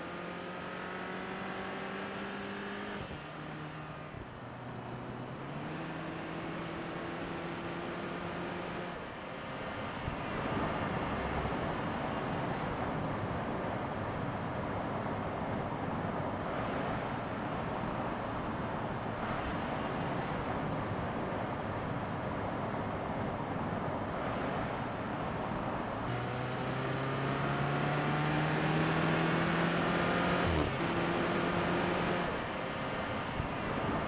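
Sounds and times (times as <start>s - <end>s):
car engine hum: 0.0s - 15.6s, 24.4s - 34.0s.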